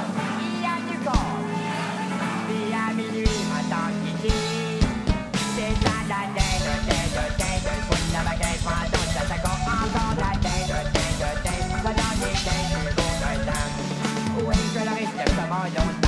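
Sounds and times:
backing song: 0.0s - 16.0s
rock drum kit playing: 3.2s - 16.0s
rapid bass drum strokes: 4.3s - 14.8s.

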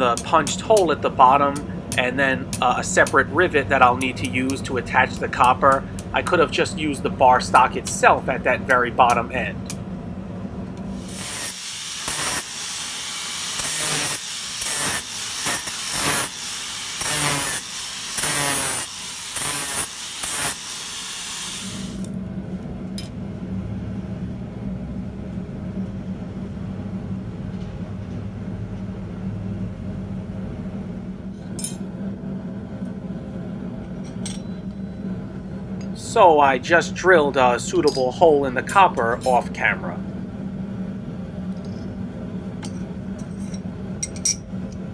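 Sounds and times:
steady low hum: 0.0s - 11.5s, 21.8s - 44.9s
angle grinder grinding metal: 11.1s - 22.1s.

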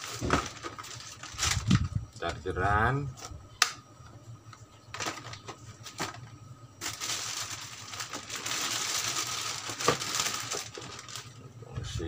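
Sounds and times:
plastic bag rustling: 0.0s - 1.9s, 5.0s - 6.2s, 6.8s - 11.4s
packaging crackling: 6.8s - 11.4s.

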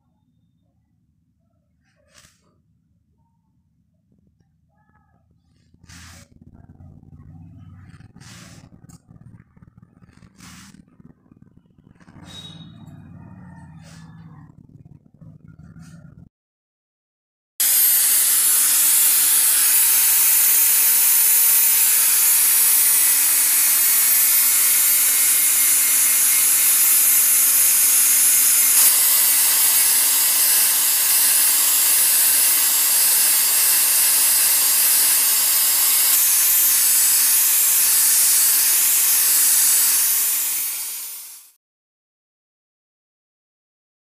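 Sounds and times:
angle grinder grinding steel: 5.8s - 14.4s, 17.6s - 41.6s.

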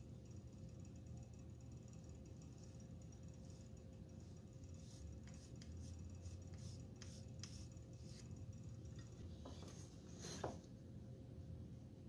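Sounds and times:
pencil scratching on wood: 4.2s - 8.4s, 9.4s - 10.6s.

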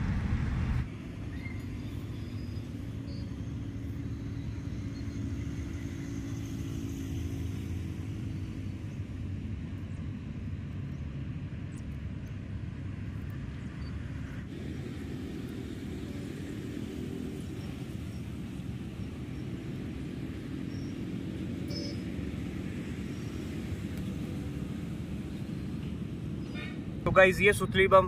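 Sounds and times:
distant engine rumbling: 0.0s - 0.9s.

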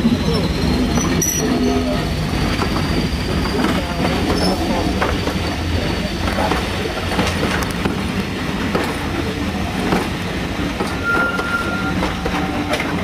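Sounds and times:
train rolling past rumbling: 0.0s - 13.0s.

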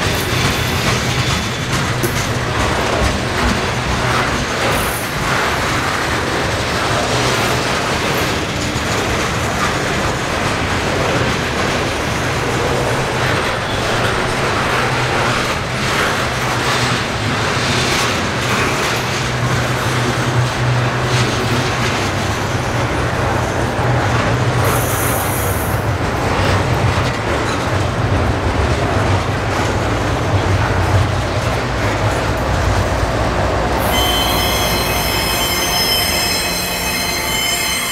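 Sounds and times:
train wheels clattering on rails: 0.0s - 37.9s
high-pitched squeal: 33.8s - 37.9s.

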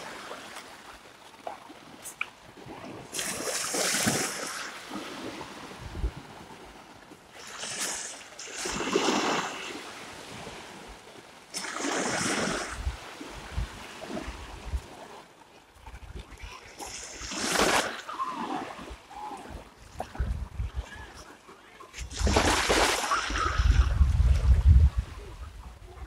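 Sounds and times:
waves washing onto sand: 2.0s - 15.3s, 16.3s - 21.2s
wind buffeting microphone: 5.8s - 6.4s, 19.5s - 21.2s, 23.3s - 26.0s.

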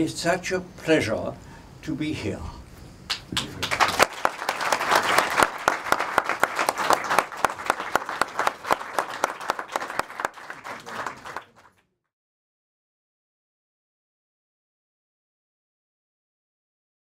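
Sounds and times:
audience applauding: 3.1s - 11.8s.

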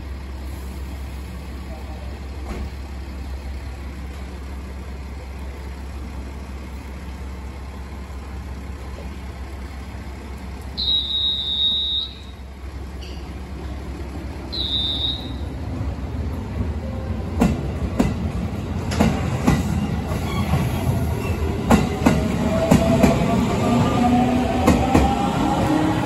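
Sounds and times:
high-pitched wheel squeals: 10.8s - 12.4s
electric train starting: 16.8s - 26.0s.

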